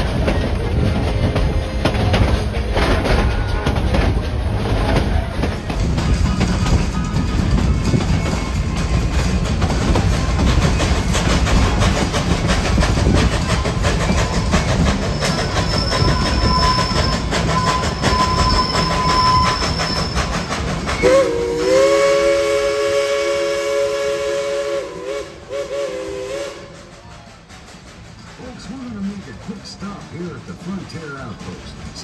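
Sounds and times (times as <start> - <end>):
cars clicking over rail joints: 0.0 - 21.0
steam train clattering rumble: 0.0 - 32.0
steam whistle chord: 21.0 - 26.8.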